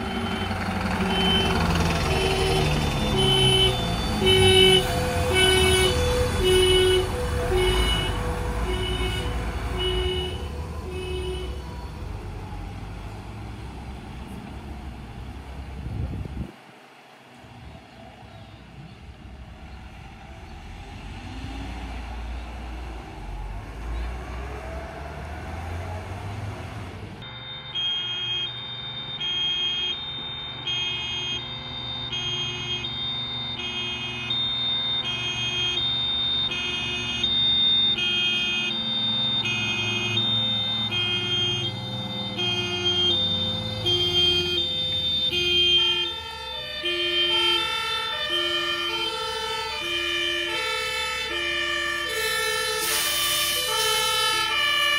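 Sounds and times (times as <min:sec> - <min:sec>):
two-tone siren: 0:00.0 - 0:13.1, 0:21.0 - 0:54.9
vehicle engine driving by: 0:00.0 - 0:27.3
second faster two-tone siren: 0:27.2 - 0:54.9.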